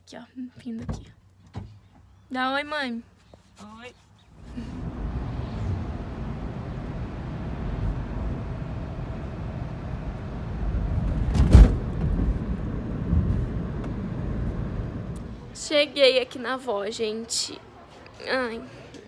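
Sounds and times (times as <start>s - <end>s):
road and engine rumble in car: 4.3s - 15.6s
passing car whoosh: 4.4s - 15.4s.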